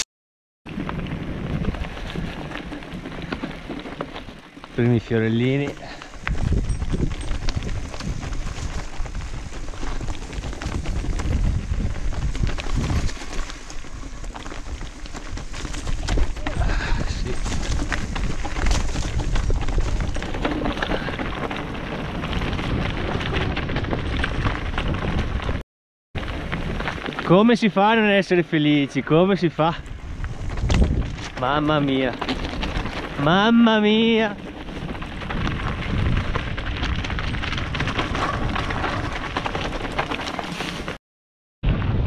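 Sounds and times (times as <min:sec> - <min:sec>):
wind rumble on microphone: 0:00.7 - 0:03.8, 0:05.9 - 0:25.6, 0:29.8 - 0:40.0
bike tyres crunching leaves: 0:00.7 - 0:25.6, 0:26.2 - 0:41.0
small rattles and clicks: 0:02.0 - 0:21.6.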